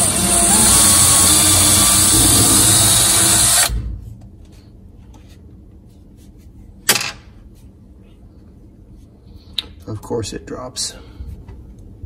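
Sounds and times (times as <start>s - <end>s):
cordless drill spinning: 0.0s - 3.7s.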